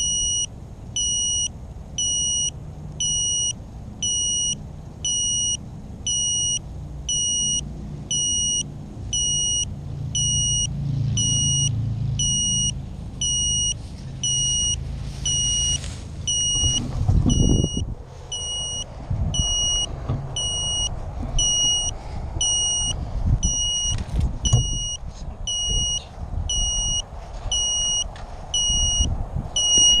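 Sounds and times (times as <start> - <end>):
short high beeps: 0.0 - 8.6, 9.2 - 28.0, 28.6 - 30.0
low wind rumble on microphone: 12.2 - 30.0
knocks and rustling: 16.6 - 17.4.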